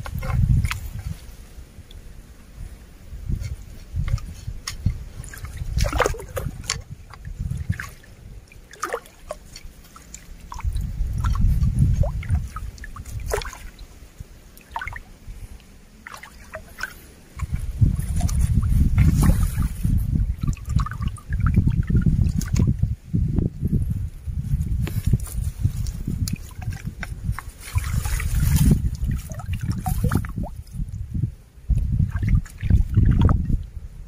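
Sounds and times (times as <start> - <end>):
stream water sloshing and dripping: 0.0 - 2.6, 3.3 - 22.9, 24.4 - 34.0
small splashes: 4.0 - 13.9, 14.5 - 22.8, 25.2 - 30.9, 32.0 - 33.4.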